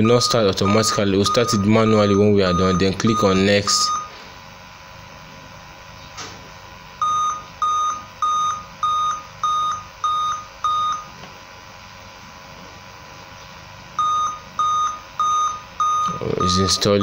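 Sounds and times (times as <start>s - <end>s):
electronic beeper short beeps: 0.0s - 4.1s, 14.0s - 17.0s.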